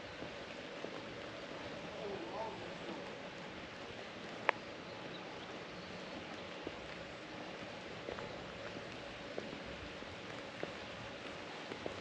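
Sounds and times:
outdoor background hiss: 0:00.0 - 0:12.0
faint ticks: 0:04.2 - 0:05.2, 0:08.0 - 0:12.0.

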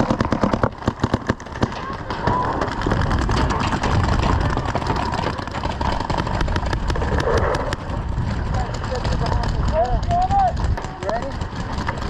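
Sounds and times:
paintball marker shots: 0:00.0 - 0:03.3
steady low rumble: 0:02.0 - 0:12.0.

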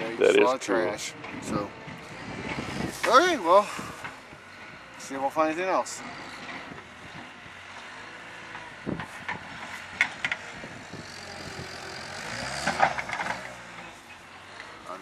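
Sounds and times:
distant loader engine running: 0:00.0 - 0:15.0.

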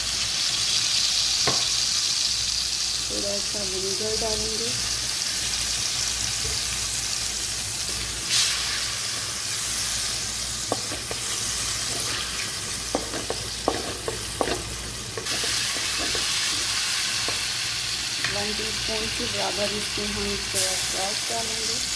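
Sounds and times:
sauce sizzling in hot oil: 0:00.0 - 0:21.9
spoon scraping and knocking pan: 0:10.6 - 0:17.5.

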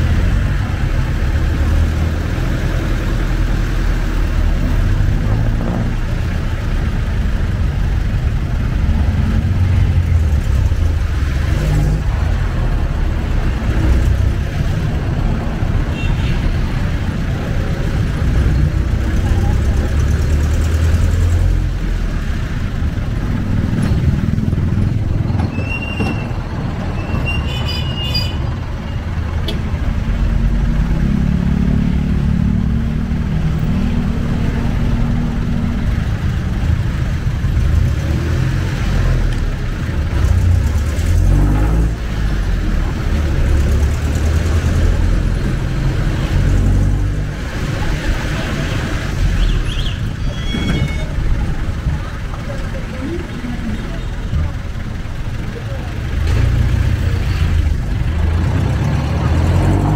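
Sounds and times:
diesel engine rumble: 0:00.0 - 0:59.9
brief high squeaks: 0:25.4 - 0:28.4, 0:49.8 - 0:51.2.

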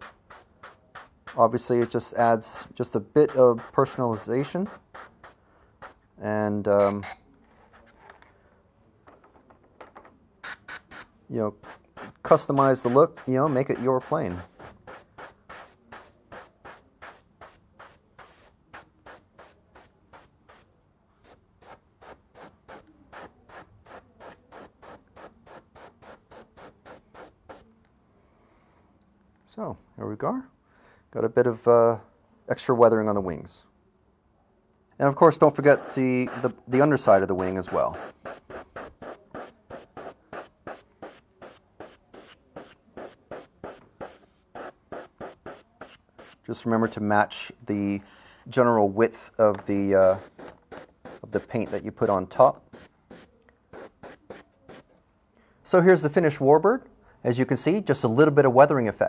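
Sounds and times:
airbrush air hiss bursts: 0:00.0 - 0:02.7, 0:10.4 - 0:20.7, 0:21.3 - 0:27.6, 0:35.6 - 0:47.0, 0:50.0 - 0:51.8, 0:52.7 - 0:54.8.

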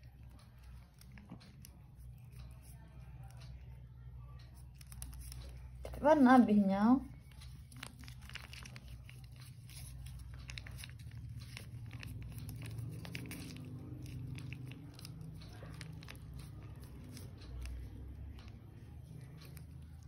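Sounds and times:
cat chewing and licking food: 0:00.0 - 0:20.0
foil pouch crinkling: 0:07.2 - 0:17.7.

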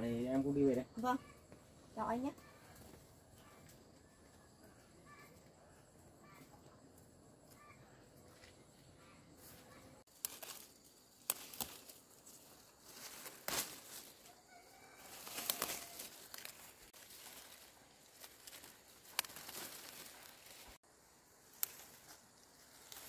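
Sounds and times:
foliage rustling: 0:09.4 - 0:23.0.

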